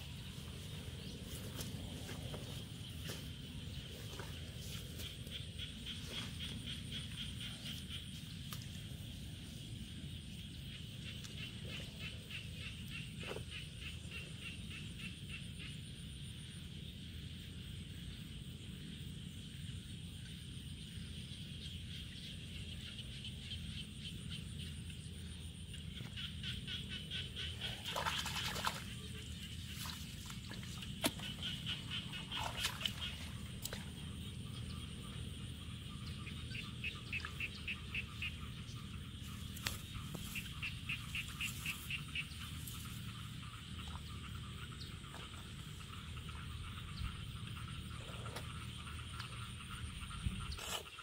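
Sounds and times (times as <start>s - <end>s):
hands splashing in muddy water: 27.7s - 29.0s.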